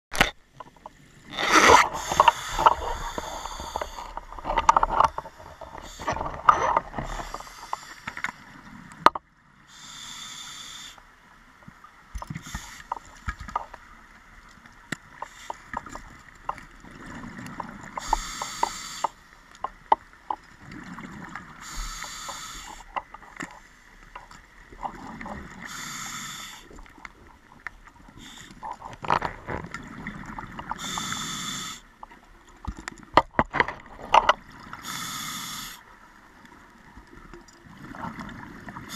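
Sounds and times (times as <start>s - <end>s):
diver breathing through regulator: 1.4s - 4.5s, 9.7s - 11.0s, 18.0s - 19.2s, 21.6s - 23.0s, 25.6s - 26.8s, 30.7s - 31.9s, 34.8s - 35.9s
small clicks and knocks: 2.1s - 9.3s, 11.6s - 13.8s, 32.0s - 34.5s.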